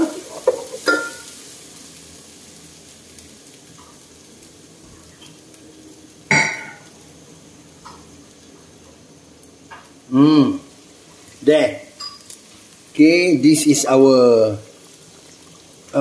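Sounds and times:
sizzling frying hiss: 0.0s - 16.0s.

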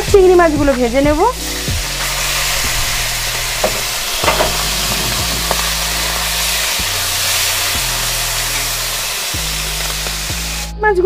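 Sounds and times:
prawns sizzling in hot oil: 0.0s - 10.8s
metal spatula scraping: 1.4s - 8.8s.

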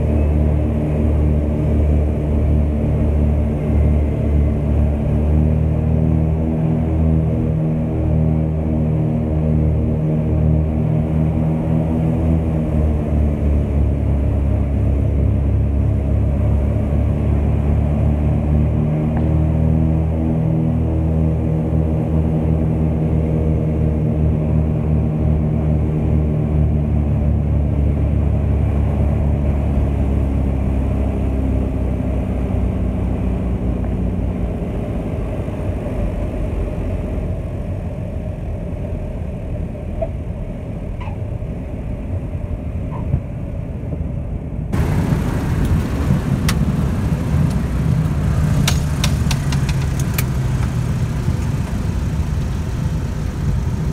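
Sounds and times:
rushing of plane on runway: 44.7s - 53.9s
sharp rattles: 44.8s - 53.9s
twin piston engines droning: 44.8s - 53.9s.

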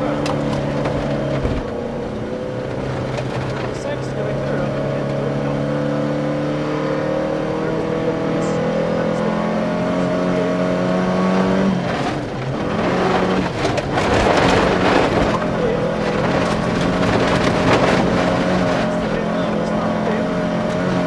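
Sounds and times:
gravel rattling against car: 0.0s - 5.8s, 11.3s - 21.0s
rally car engine pulling: 0.0s - 21.0s.

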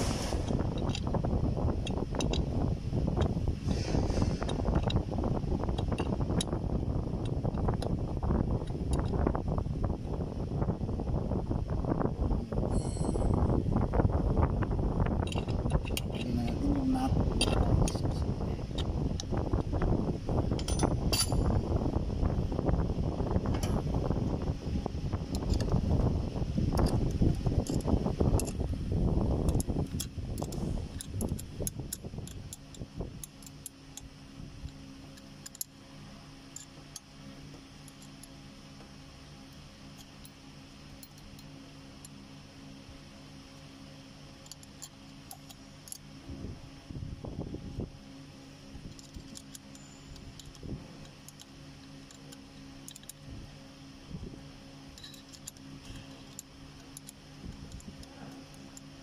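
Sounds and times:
steady low hum: 0.0s - 59.0s
screwdriver clicking on metal: 48.9s - 53.2s, 54.9s - 58.9s.

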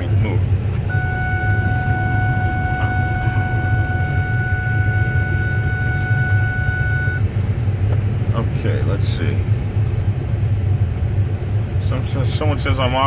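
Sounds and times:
car cabin rumble while driving: 0.0s - 13.0s
steady high tone: 0.9s - 7.2s.

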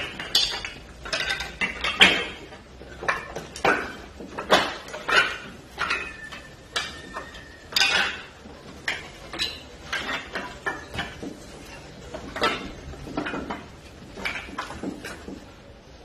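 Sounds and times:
firewood knocking and clattering: 0.0s - 15.7s.

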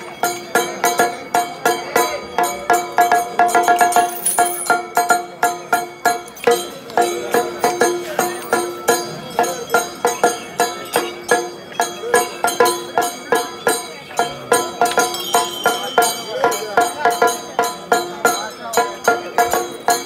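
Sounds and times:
ringing percussion strikes: 0.0s - 20.0s
held tone: 15.0s - 16.4s.

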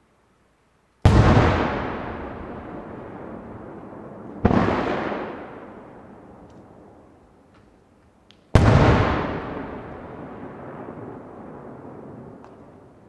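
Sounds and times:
firework crackles: 0.9s - 13.0s.

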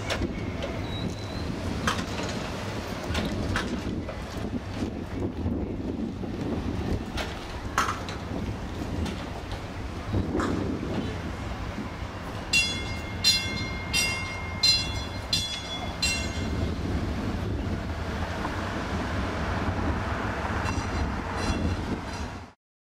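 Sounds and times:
streetcar bell ringing: 0.0s - 1.5s, 11.8s - 17.8s.

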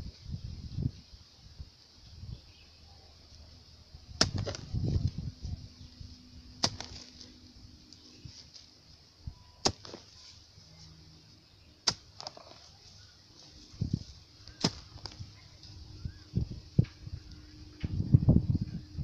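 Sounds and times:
hoe striking sandy earth: 4.2s - 5.3s, 6.4s - 8.7s, 9.3s - 10.5s, 11.8s - 15.8s.

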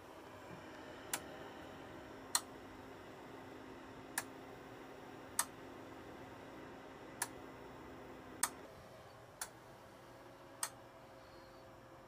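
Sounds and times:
faint hum from cooktop: 0.0s - 12.0s
electronic relay clicking: 2.3s - 2.6s, 4.1s - 4.4s, 5.3s - 5.6s, 7.2s - 7.4s, 8.4s - 8.6s, 9.4s - 9.6s, 10.6s - 10.8s.

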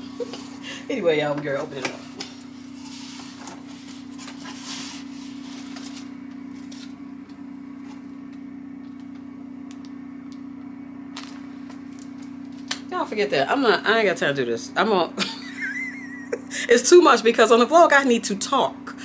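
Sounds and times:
steady low hum: 0.0s - 19.0s
cardboard and packaging rustling: 2.0s - 7.0s
packaging crinkle: 11.1s - 12.8s.

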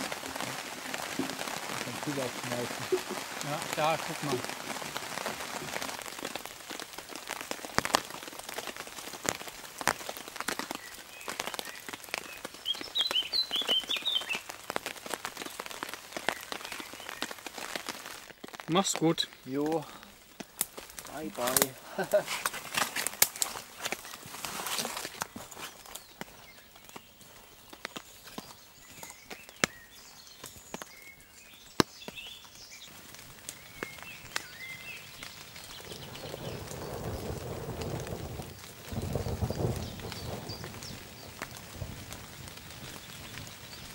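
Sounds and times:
footsteps through undergrowth: 0.0s - 36.5s
raindrops tapping on a tarp: 0.0s - 43.9s
small birds chirping: 0.0s - 43.9s
bird chirping: 10.5s - 14.5s, 23.8s - 32.9s, 33.5s - 37.3s
dry twigs snapping: 14.6s - 38.7s.

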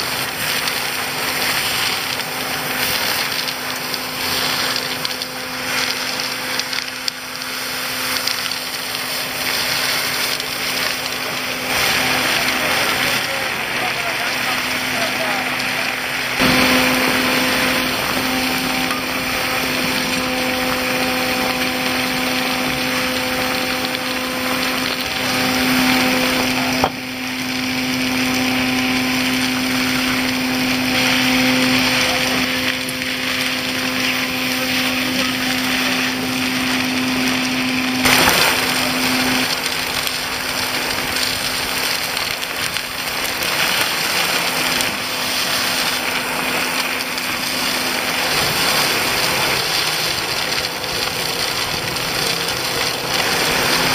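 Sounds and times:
constant low hum: 0.0s - 53.9s
gravel rattling in hose: 0.0s - 53.9s.

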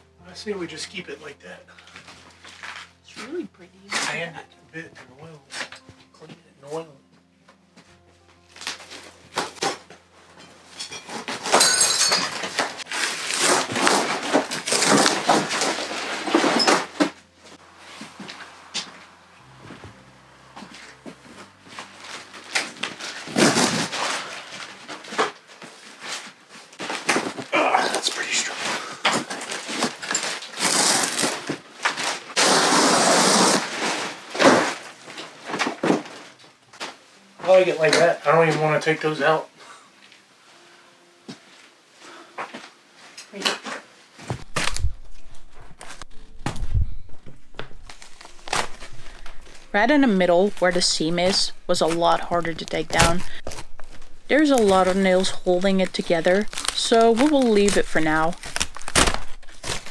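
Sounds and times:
wall lining ripping and crackling: 12.3s - 17.2s, 21.8s - 36.9s, 43.3s - 49.9s, 50.5s - 59.9s.

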